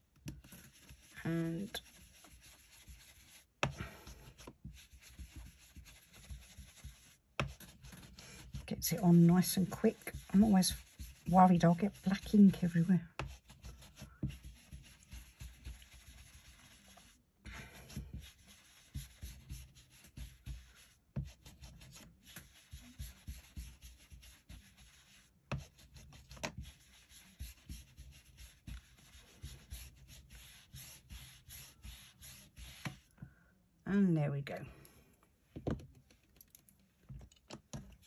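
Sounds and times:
brush rubbing on paper: 0.0 - 33.1.

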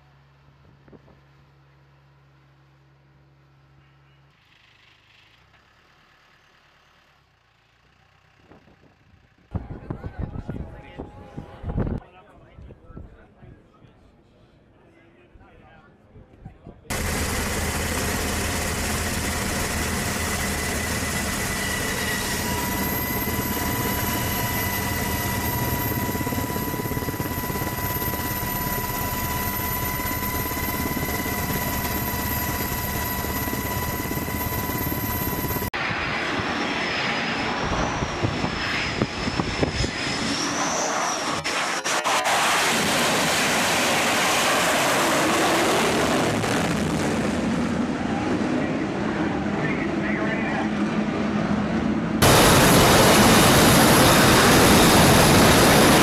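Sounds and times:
helicopter turbine whine: 16.9 - 56.0
jet engines roaring: 16.9 - 56.0.

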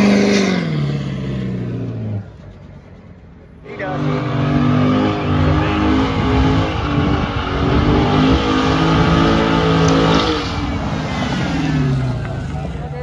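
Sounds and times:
car engine at high revs: 0.0 - 2.4, 3.6 - 13.0.

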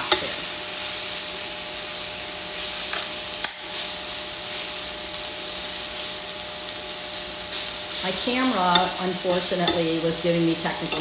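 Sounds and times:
chicken sizzling in skillet: 0.0 - 11.0
tongs clicking against pan: 2.9 - 3.6, 8.6 - 9.9.

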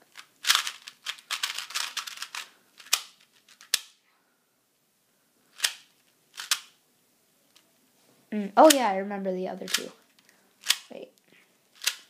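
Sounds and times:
puzzle cube plastic clacking: 0.0 - 4.0, 5.6 - 6.8, 8.6 - 8.9, 9.6 - 10.9, 11.7 - 12.0.

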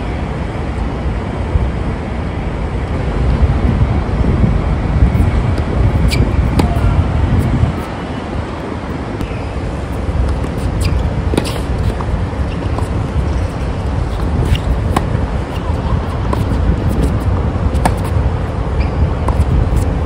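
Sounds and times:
steady low rumble: 0.0 - 20.0
racket hitting tennis ball: 6.0 - 6.9, 10.2 - 18.2.

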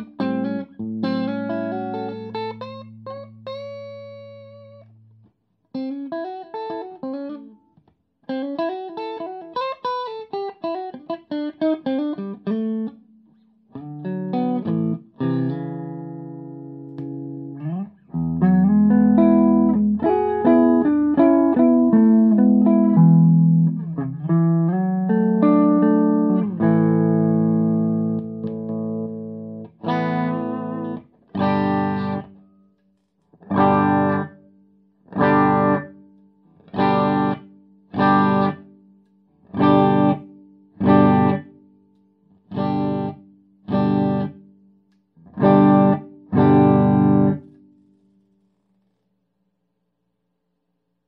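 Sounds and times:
electric guitar playing: 0.0 - 7.7, 8.3 - 32.4, 33.4 - 34.5, 35.1 - 38.8, 39.4 - 41.6, 42.5 - 44.5, 45.2 - 47.7
guitar chord stabs: 14.0 - 32.4, 33.5 - 34.4, 35.2 - 35.9, 36.8 - 37.4, 38.0 - 38.6, 39.6 - 41.5, 45.4 - 47.6.

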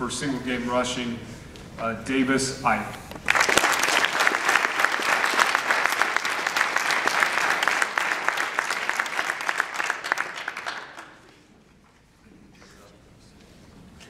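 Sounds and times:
audience applauding: 3.2 - 11.5.

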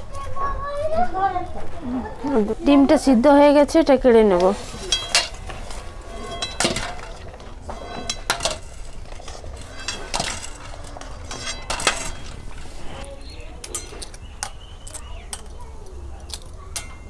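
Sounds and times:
steel spoon clinking on metal: 4.8 - 9.0, 9.6 - 12.6, 13.6 - 15.5, 16.3 - 17.0.

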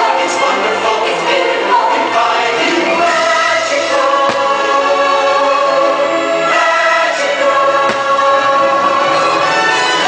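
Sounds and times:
choral singing with orchestra: 0.0 - 10.0
firework bang: 4.2 - 4.8, 7.8 - 8.5.

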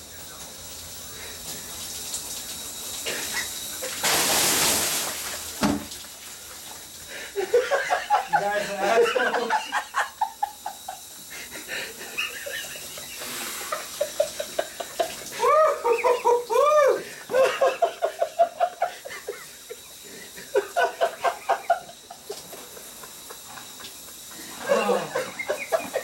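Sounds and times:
shower running: 0.0 - 26.0
stifled giggling: 7.2 - 26.0.

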